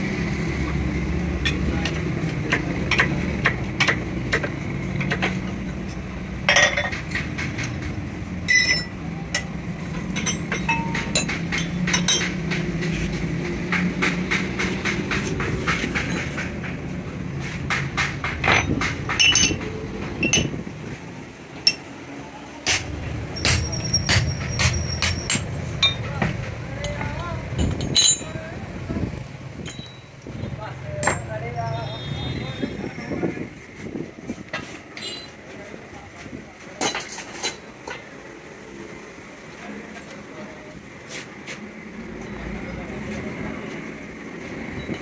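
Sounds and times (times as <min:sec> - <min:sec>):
metallic clinks of tools: 0:08.4 - 0:12.5, 0:18.4 - 0:20.6, 0:22.7 - 0:26.2, 0:26.8 - 0:28.5, 0:29.6 - 0:30.2, 0:34.9 - 0:35.4.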